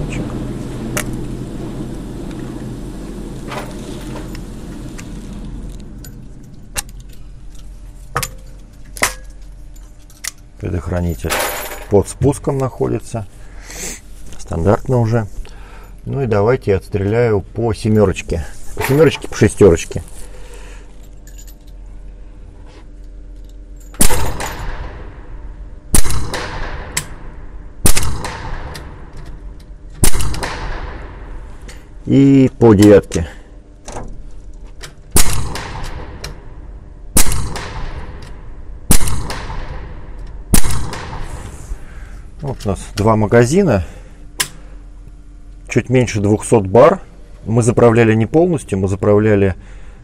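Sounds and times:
low steady hum: 0.0 - 50.0
air rifle shots: 24.0 - 25.3, 25.9 - 29.1, 30.0 - 31.4, 35.1 - 36.3, 37.2 - 41.6.

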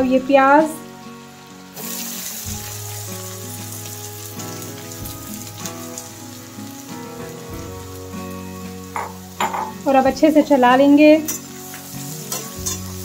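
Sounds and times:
background music: 0.0 - 13.0
oil sizzling and crackling: 0.0 - 13.0.

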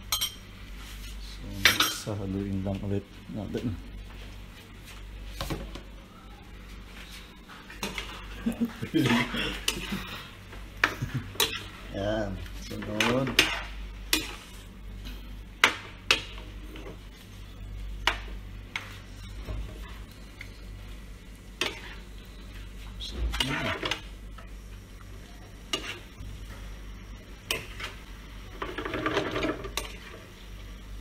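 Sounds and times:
faint sizzle: 0.0 - 31.0
metal utensil scraping pan: 21.6 - 22.0, 25.7 - 26.1, 28.6 - 30.2.

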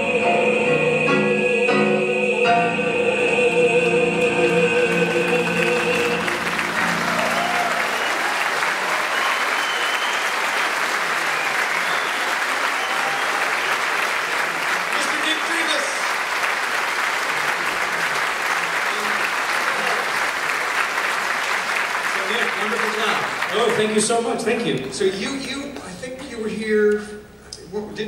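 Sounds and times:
audience applause: 4.2 - 25.2.

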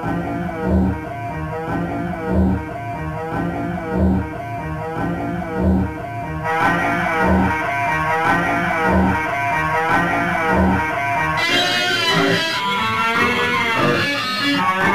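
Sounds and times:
pulsing bass notes: 0.0 - 14.9
electric guitar rock music: 6.0 - 14.9.

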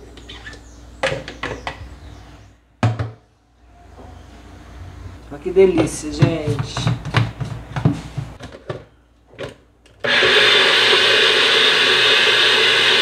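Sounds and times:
blender whirring: 10.0 - 13.0.

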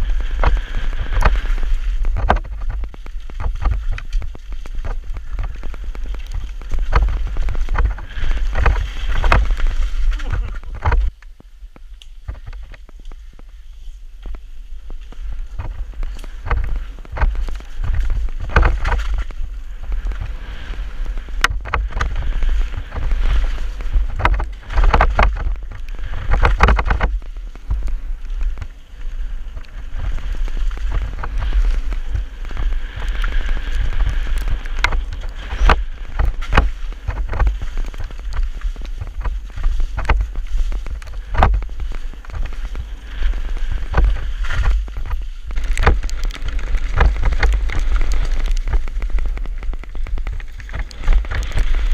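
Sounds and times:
bike clattering and rattling: 0.0 - 51.9
tyre noise on dirt: 0.0 - 51.9
wind rumbling on microphone: 0.0 - 51.9.

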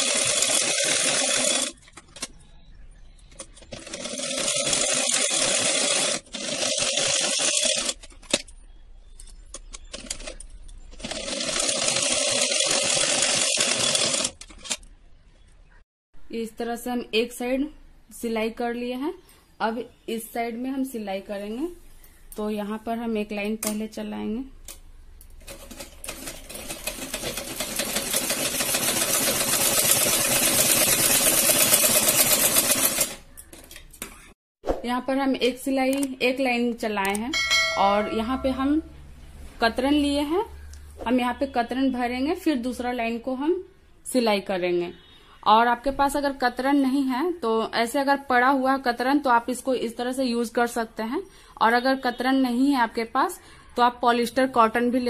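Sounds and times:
sewing machine stitching: 0.0 - 1.8, 3.4 - 8.1, 9.9 - 14.8, 25.4 - 33.2.

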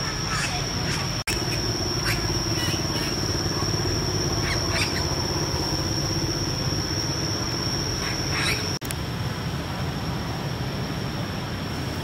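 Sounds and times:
constant thin high tone: 0.0 - 8.9
steady low rumble: 0.0 - 12.0.

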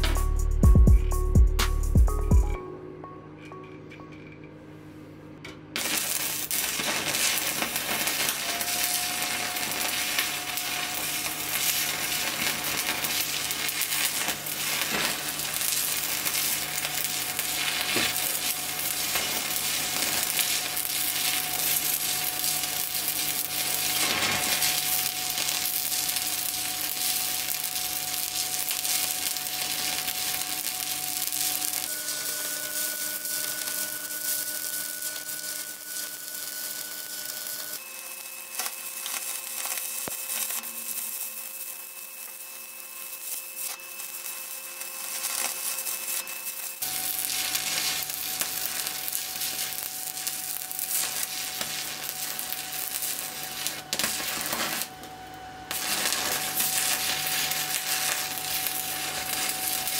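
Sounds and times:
steady whine: 0.0 - 59.9
welding arc crackling: 5.8 - 59.9.

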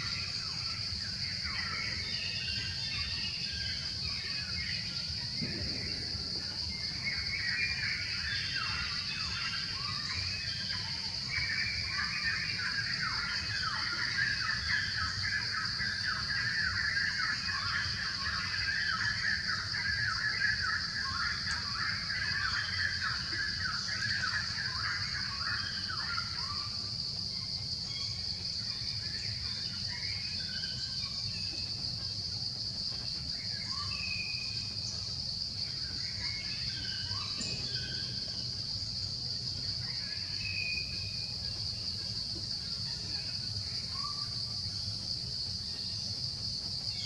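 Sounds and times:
high insect drone: 0.0 - 47.0
low rumble: 5.3 - 7.5.

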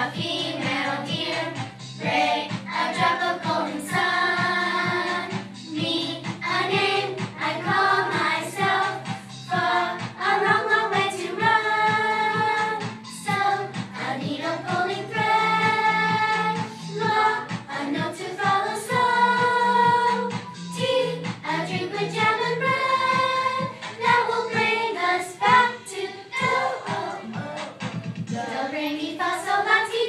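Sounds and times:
children singing: 0.0 - 30.0
woman singing: 25.4 - 30.0.

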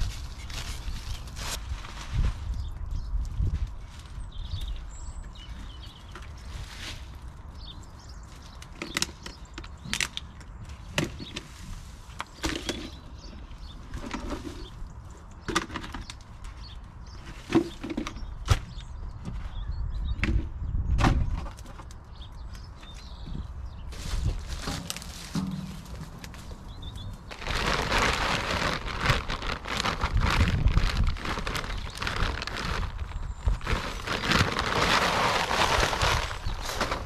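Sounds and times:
rubbish dropped into plastic sack: 23.9 - 37.0.

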